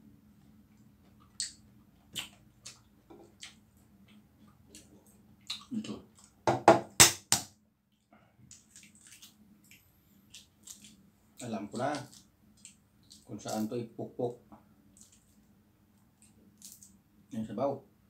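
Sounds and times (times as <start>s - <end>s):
sharp knocks on egg: 6.4s - 7.5s.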